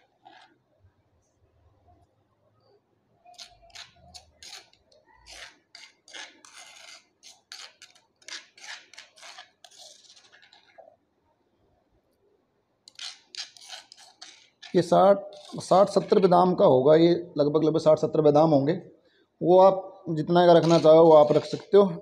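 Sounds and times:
spoon scraping stone mortar: 0:00.0 - 0:00.6, 0:03.2 - 0:10.9, 0:12.9 - 0:16.4, 0:20.6 - 0:21.8.

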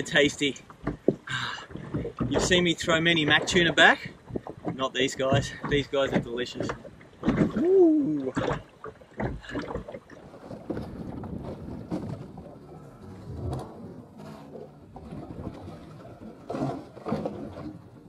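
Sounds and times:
knocks and bumps in boat: 0:00.0 - 0:18.0
water noise: 0:00.0 - 0:18.0
wind noise: 0:10.4 - 0:14.0.

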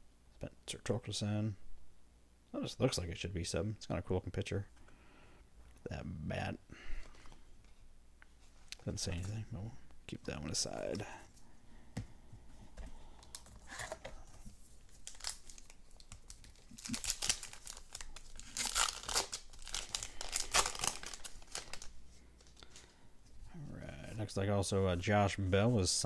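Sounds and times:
plastic wrapper crinkling and tearing: 0:13.2 - 0:22.9.

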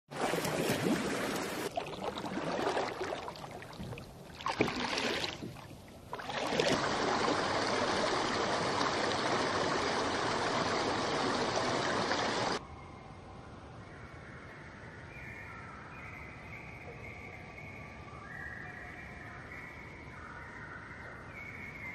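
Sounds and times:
rushing water: 0:00.1 - 0:12.6.

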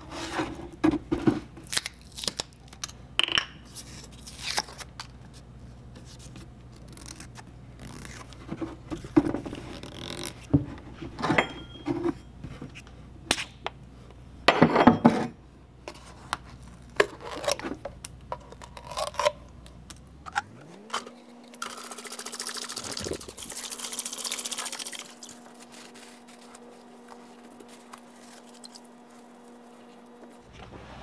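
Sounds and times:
liquid pouring into plastic bucket: 0:21.7 - 0:25.2.

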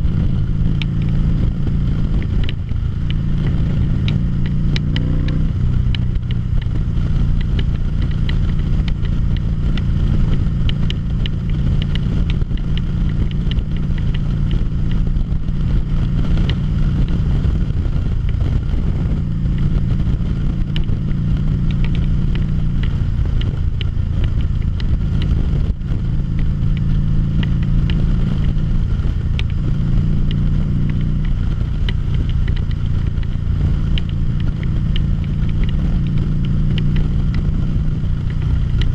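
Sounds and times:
motorcycle engine running: 0:00.0 - 0:38.9
light ticks: 0:00.6 - 0:38.9.

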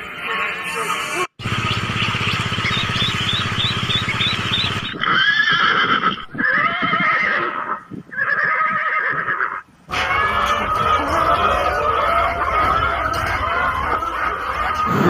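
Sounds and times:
ducklings peeping: 0:01.4 - 0:05.1
horse neighing: 0:04.9 - 0:09.6, 0:14.8 - 0:15.0
hens clucking: 0:09.9 - 0:15.0.

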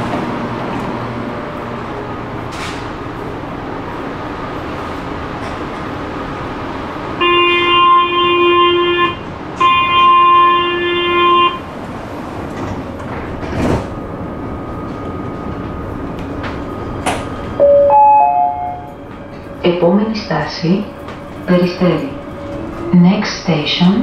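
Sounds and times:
train running noise: 0:00.0 - 0:24.0
long electronic warning beeps: 0:17.6 - 0:18.9.

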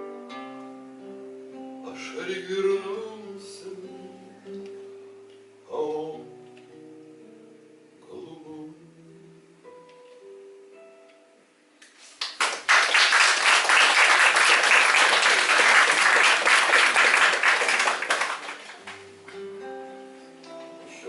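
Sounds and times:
acoustic guitar picking: 0:00.0 - 0:08.2, 0:18.8 - 0:21.0
audience applause: 0:12.2 - 0:19.0.

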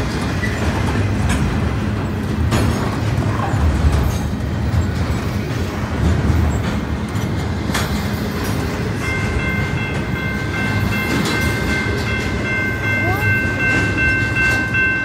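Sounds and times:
train wheels rumbling on rail: 0:00.0 - 0:15.0
high-pitched multi-tone ringing: 0:09.0 - 0:15.0.

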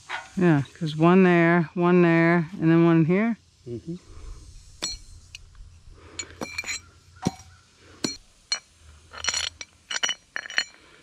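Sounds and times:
metal nuts clinking: 0:06.2 - 0:07.4, 0:08.0 - 0:10.9.

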